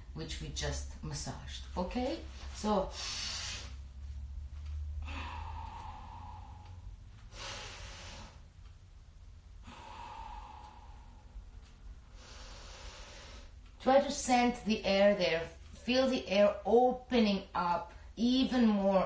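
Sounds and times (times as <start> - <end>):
low hum: 0.0 - 16.9
woman breathing deeply: 2.9 - 4.0, 4.9 - 8.7, 9.5 - 13.7.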